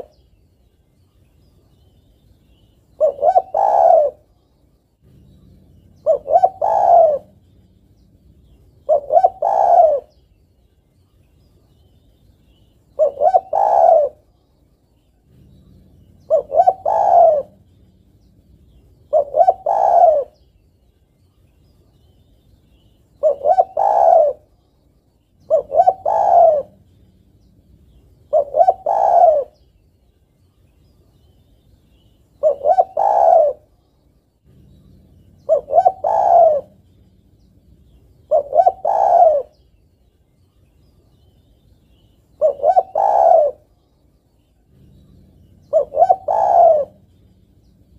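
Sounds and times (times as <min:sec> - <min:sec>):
dove cooing: 0:00.0 - 0:00.2, 0:02.9 - 0:04.4, 0:05.0 - 0:10.3, 0:12.5 - 0:14.4, 0:15.2 - 0:20.6, 0:22.7 - 0:24.6, 0:25.4 - 0:29.7, 0:31.9 - 0:39.7, 0:41.9 - 0:43.8, 0:44.6 - 0:47.9.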